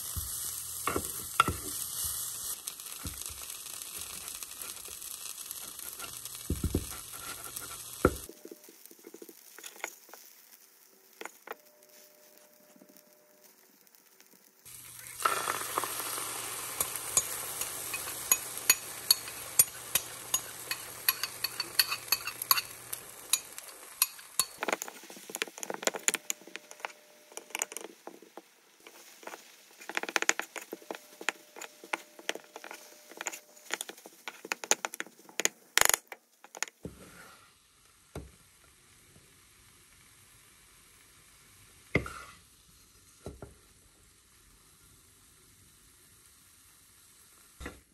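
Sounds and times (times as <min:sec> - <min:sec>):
food sizzling in a frying pan: 0:00.0 - 0:47.9
spatula scraping a pan: 0:05.5 - 0:08.3, 0:14.9 - 0:26.1, 0:42.0 - 0:42.4.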